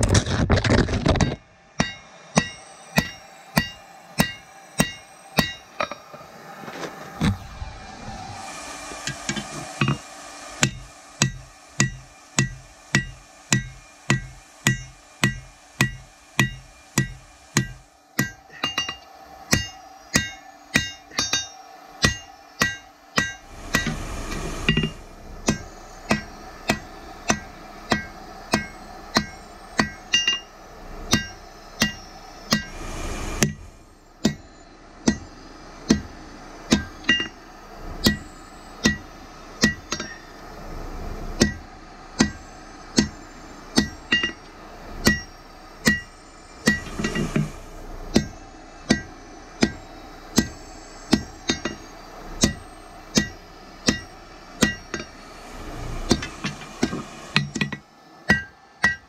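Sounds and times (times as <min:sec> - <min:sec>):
metallic ring: 0:01.0 - 0:06.1, 0:09.1 - 0:40.4, 0:42.2 - 0:59.0
hammer striking anvil: 0:01.2 - 0:06.0, 0:10.6 - 0:24.0, 0:24.6 - 0:32.8, 0:34.2 - 0:35.3, 0:35.9 - 0:36.1, 0:36.7 - 0:37.4, 0:38.8 - 0:40.2, 0:41.4 - 0:41.6, 0:42.2 - 0:42.4, 0:43.0 - 0:43.2, 0:43.8 - 0:47.5, 0:48.1 - 0:49.8, 0:50.4 - 0:55.2, 0:56.1 - 0:59.0.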